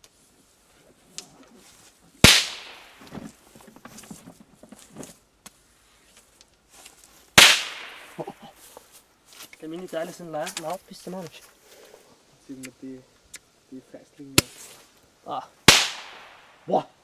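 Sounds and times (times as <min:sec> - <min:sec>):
firecracker bangs: 0:02.2 - 0:03.0, 0:07.4 - 0:08.3, 0:15.6 - 0:16.6.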